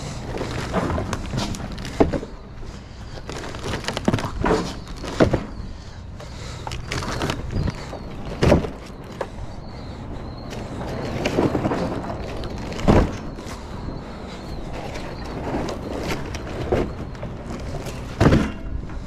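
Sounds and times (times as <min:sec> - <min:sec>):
knocks and thumps of cases: 0:00.3 - 0:02.5, 0:03.1 - 0:05.8, 0:06.7 - 0:09.4, 0:10.4 - 0:13.9, 0:14.5 - 0:19.0
plastic wrap crinkling: 0:03.2 - 0:05.3.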